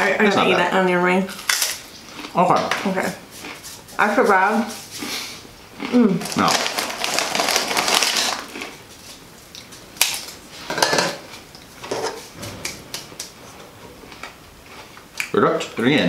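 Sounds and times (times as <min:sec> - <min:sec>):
crispbread crunching and crackling: 0:05.8 - 0:10.4.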